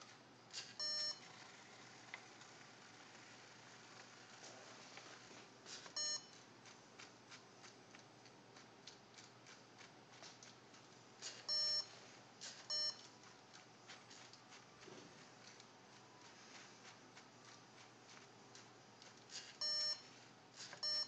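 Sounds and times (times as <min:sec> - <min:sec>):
electronic beeps: 0:00.8 - 0:01.2, 0:11.5 - 0:11.9, 0:12.7 - 0:13.0, 0:19.6 - 0:20.0.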